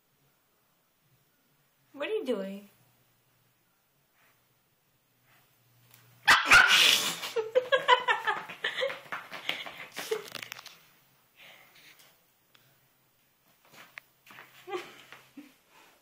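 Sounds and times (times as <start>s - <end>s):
puppy yapping: 6.3s - 7.2s.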